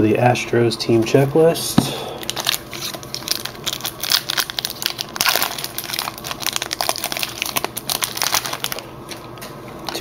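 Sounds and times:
foil wrapper crinkling: 2.2 - 10.0.

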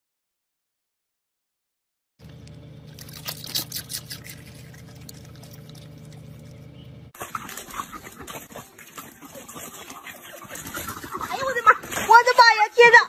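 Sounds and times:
crackling outdoor noise: 2.2 - 13.0
low car cabin hum: 4.5 - 7.2.

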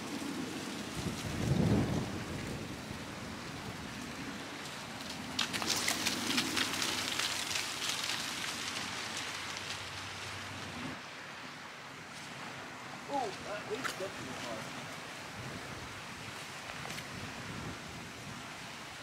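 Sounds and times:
close crackling rustle: 0.0 - 11.0, 16.2 - 17.4
wind and sea hiss: 0.0 - 19.0.

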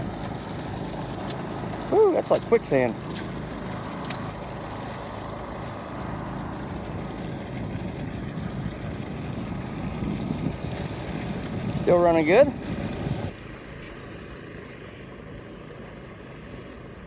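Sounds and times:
water pump engine hum: 0.0 - 17.0.

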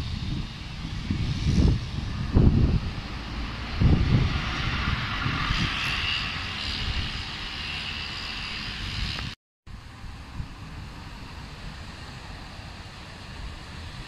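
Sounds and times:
bus engine whining: 0.0 - 9.4
low rumbling surges: 0.0 - 14.0.

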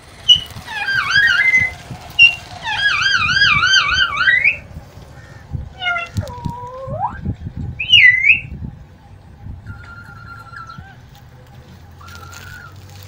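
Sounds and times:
parakeet call: 0.2 - 7.2, 7.8 - 8.5
parakeet warbling whistle: 0.3 - 4.6, 7.8 - 8.5.

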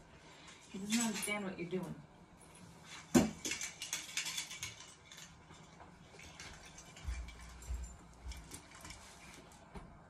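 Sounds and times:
footsteps: 5.5 - 10.0.

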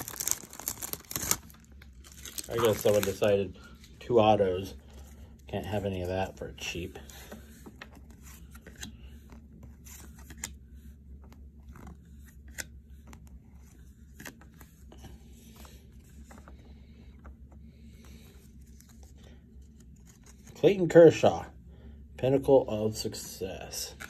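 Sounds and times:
steady low hum: 0.0 - 24.0
cards flipping clicks and scrapes: 7.1 - 20.6.

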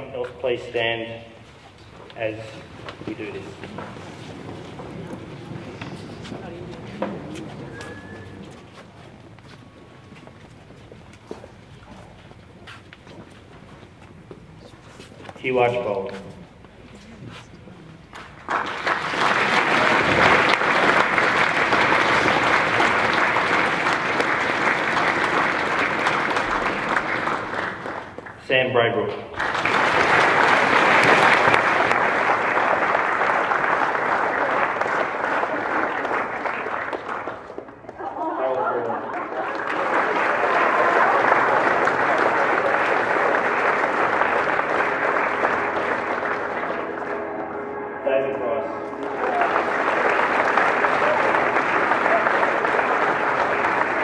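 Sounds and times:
audience applause: 2.2 - 10.6, 18.1 - 28.4, 29.4 - 48.0, 48.8 - 54.0.

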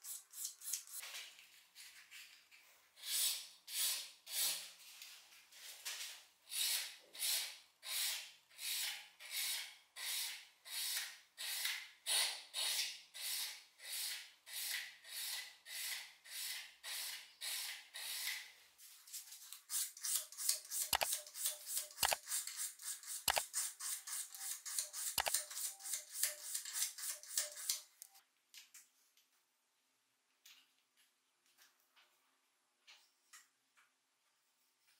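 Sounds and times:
hand file scraping steel blade: 0.0 - 1.0, 3.0 - 4.7, 6.5 - 18.5, 19.7 - 27.9
sharp clicks: 20.8 - 21.2, 22.0 - 22.2, 23.2 - 23.5, 25.1 - 25.6.

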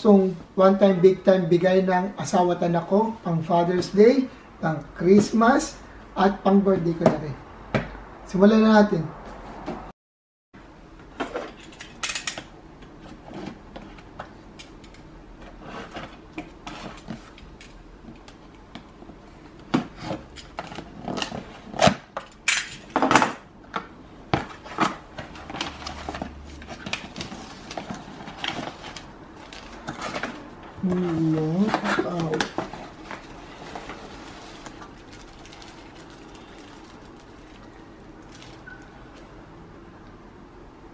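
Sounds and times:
paper rustling: 24.6 - 38.6.

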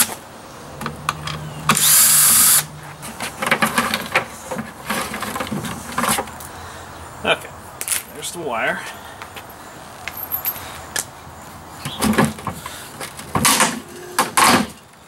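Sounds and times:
cordless drill spinning: 1.8 - 2.6
plastic parts knocking and rattling: 3.0 - 6.3.

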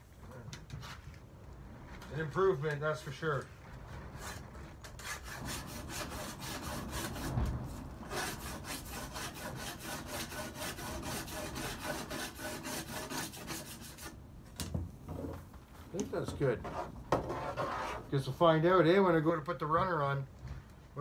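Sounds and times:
rasp filing metal: 4.2 - 14.2, 16.6 - 18.1.

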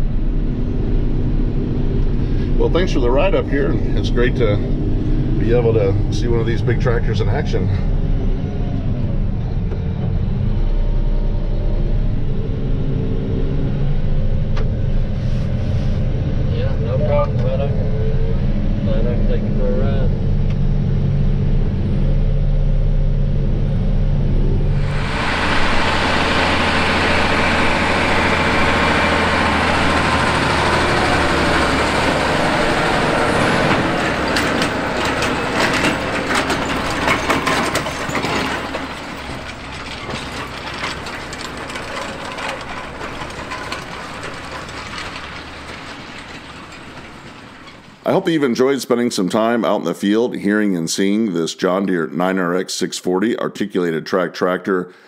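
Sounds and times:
tractor engine humming: 0.0 - 19.5, 20.1 - 49.5
tractor pulling tillage tool: 24.8 - 48.5
implement clattering and rattling: 24.8 - 48.8.

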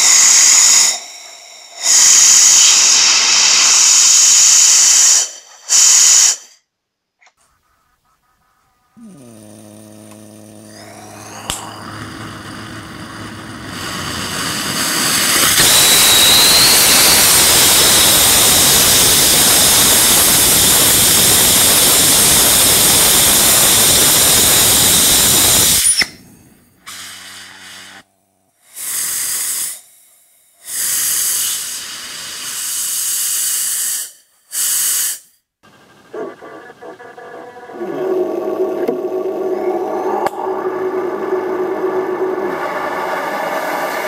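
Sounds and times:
rocket engine loud hiss: 0.0 - 6.6, 10.6 - 28.0, 28.7 - 29.9, 30.6 - 35.2
short bursts of hissing gas: 0.0 - 6.7, 11.0 - 28.0, 28.6 - 35.5.

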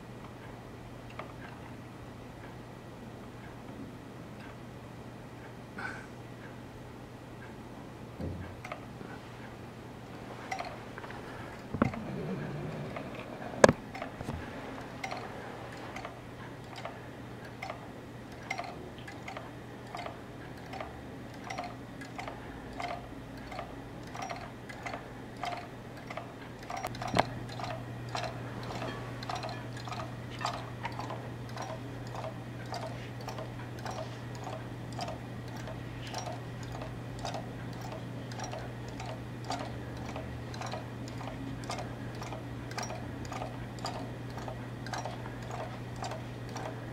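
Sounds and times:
steady low hum: 0.0 - 46.9
wheel motor ticking: 10.5 - 12.0, 12.9 - 46.9.

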